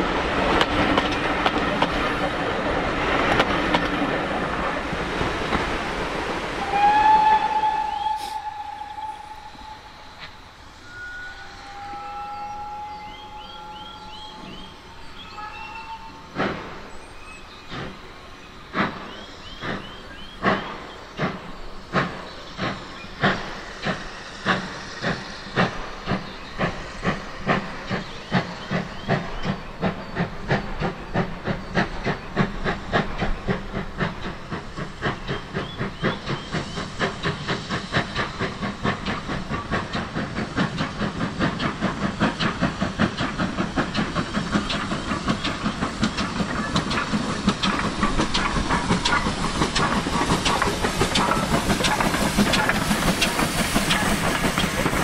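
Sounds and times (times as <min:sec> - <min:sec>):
steam hissing from cylinders: 0:00.0 - 0:55.0
steam locomotive exhaust beats: 0:00.0 - 0:55.0.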